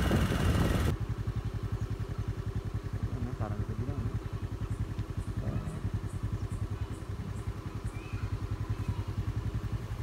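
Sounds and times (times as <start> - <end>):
vehicle engine idling: 0.0 - 10.0
faint high chirps: 4.7 - 9.3.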